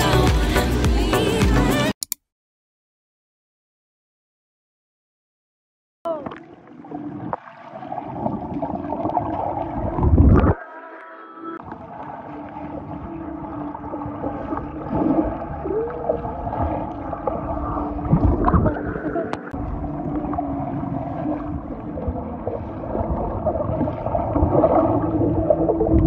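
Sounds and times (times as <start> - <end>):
muffled underwater gurgling: 6.1 - 26.0.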